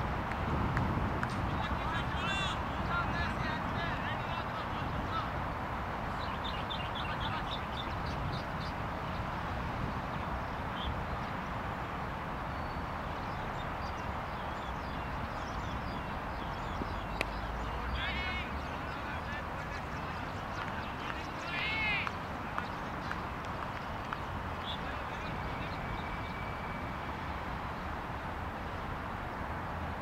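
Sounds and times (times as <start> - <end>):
bird chirps: 6.1 - 9.2, 24.1 - 27.1.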